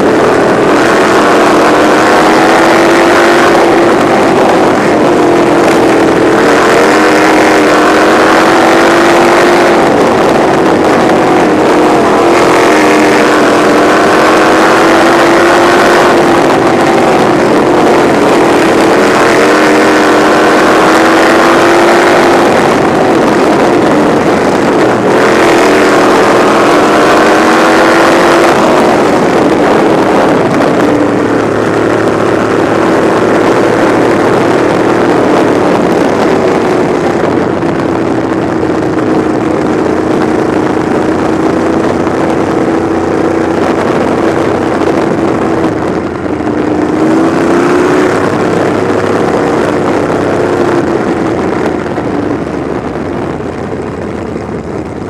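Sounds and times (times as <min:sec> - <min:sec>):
racing car engine running hard: 0:00.0 - 0:55.0.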